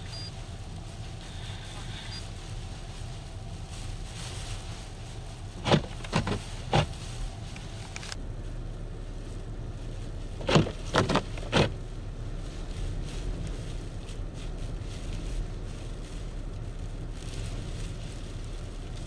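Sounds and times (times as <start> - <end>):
vehicle engines rumbling: 0.0 - 19.0.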